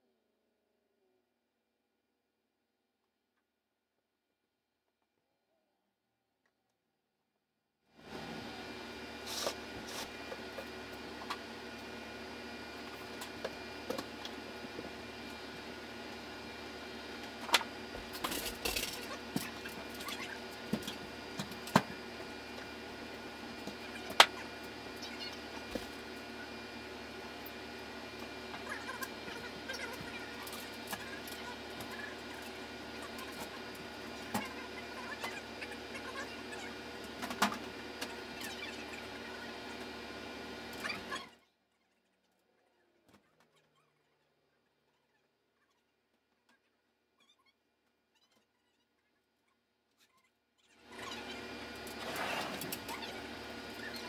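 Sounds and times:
steady background hum: 0:08.0 - 0:45.9, 0:50.0 - 0:54.0
rustling scrape: 0:09.2 - 0:10.2, 0:52.0 - 0:52.7.

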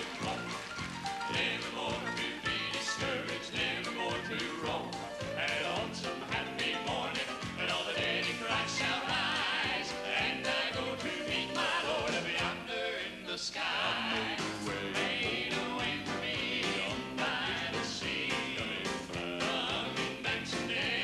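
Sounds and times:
male vocal quartet singing: 0:00.0 - 0:00.6, 0:01.2 - 0:21.0
live band with drums: 0:00.0 - 0:12.6.

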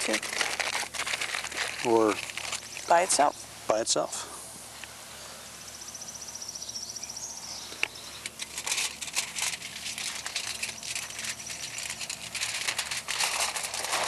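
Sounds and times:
aluminium foil crinkling: 0:00.0 - 0:03.3, 0:08.2 - 0:14.0
insect trilling: 0:08.0 - 0:13.2.

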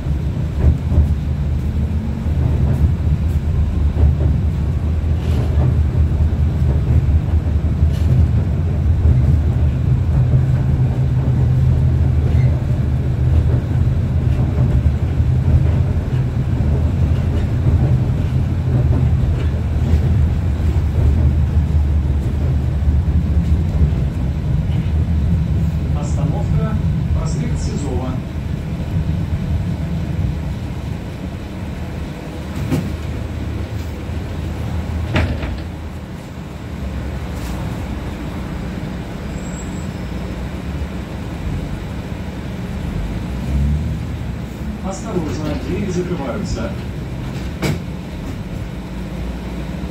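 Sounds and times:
tram rumbling on rails: 0:00.0 - 0:49.9.

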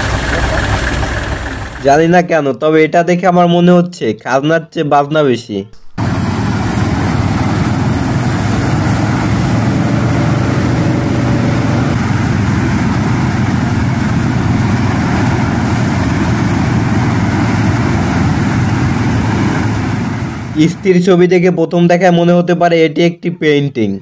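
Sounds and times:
tractor engine and burner noise: 0:00.0 - 0:02.1, 0:05.8 - 0:21.0.

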